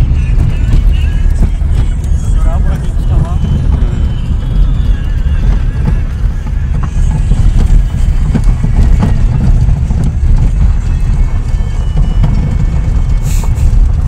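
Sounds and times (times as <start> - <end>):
car rumbling on gravel road: 0.0 - 14.0
knocks and rattles: 5.4 - 13.2.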